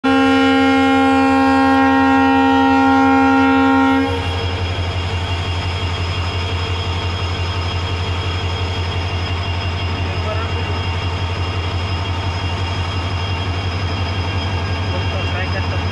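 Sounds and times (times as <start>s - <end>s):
locomotive air horn: 0.0s - 4.6s.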